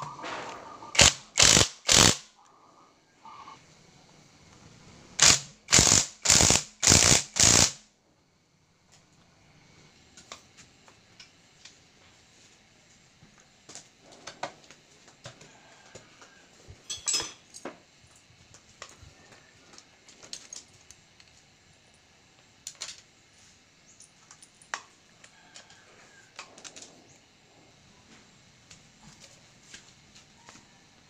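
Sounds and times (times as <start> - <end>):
metal parts clinking: 16.9 - 17.6.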